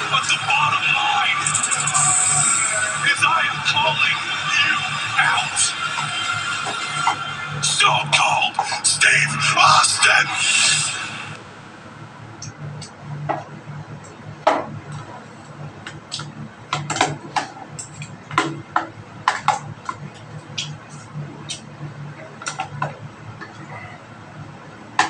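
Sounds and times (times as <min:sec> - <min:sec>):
low steady hum: 0:00.0 - 0:25.0.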